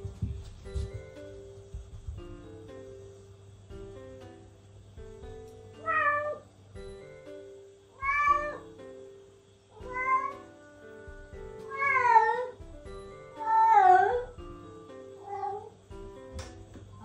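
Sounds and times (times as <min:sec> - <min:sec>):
soft guitar music: 0:02.2 - 0:17.0
cat meowing: 0:05.8 - 0:06.4, 0:08.0 - 0:08.7, 0:09.8 - 0:10.5, 0:11.6 - 0:12.6, 0:13.3 - 0:14.4, 0:15.2 - 0:15.8.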